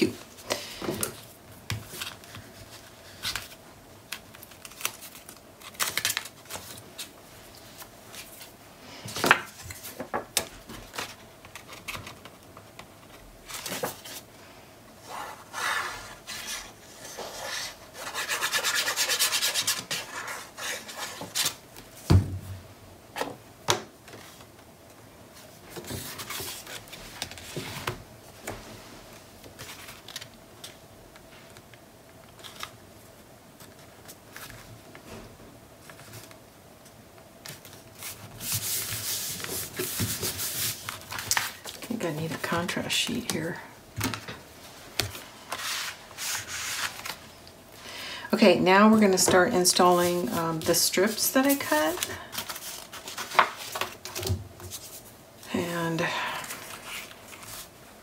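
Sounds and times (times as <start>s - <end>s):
paper rubbing and sliding: 45.4s - 47.2s.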